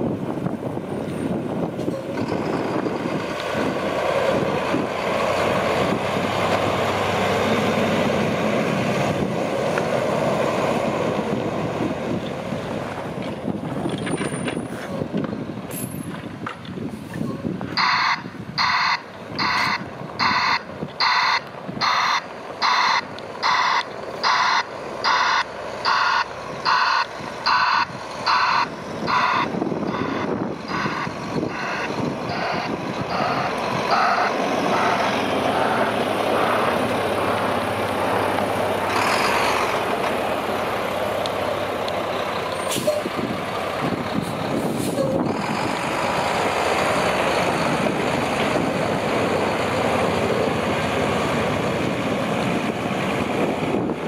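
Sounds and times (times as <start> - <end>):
diesel truck engine: 0.0 - 54.0
reversing alarm beeping: 17.8 - 35.9.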